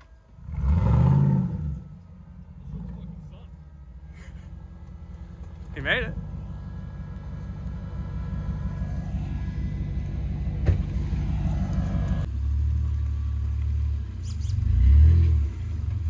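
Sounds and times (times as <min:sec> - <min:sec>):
truck engine rumbling: 0:00.0 - 0:16.0.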